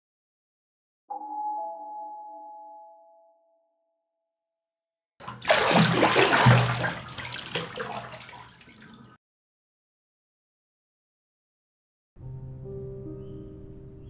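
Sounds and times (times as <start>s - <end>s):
bathwater splashing and churning: 5.2s - 9.2s.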